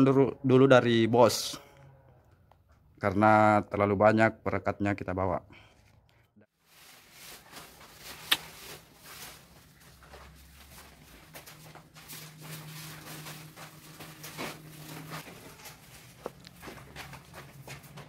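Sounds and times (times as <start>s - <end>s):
footsteps: 6.6s - 18.0s
paper sacks rustling: 6.6s - 18.0s.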